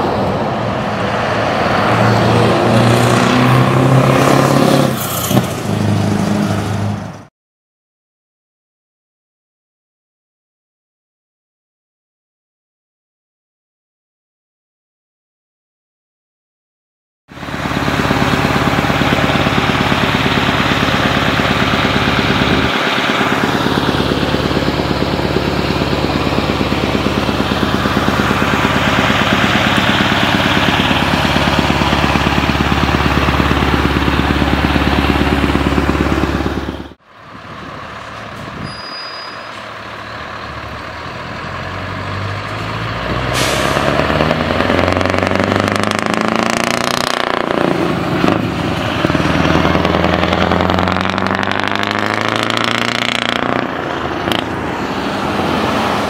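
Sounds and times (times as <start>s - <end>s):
diesel truck engine rumbling: 0.0s - 7.3s, 17.3s - 56.0s
short air hiss: 43.3s - 43.8s.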